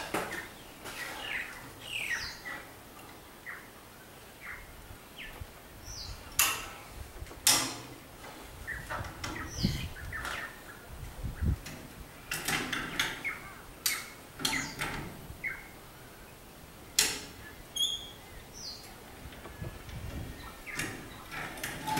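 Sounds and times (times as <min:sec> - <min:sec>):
faint bird chirps: 0:17.4 - 0:18.9.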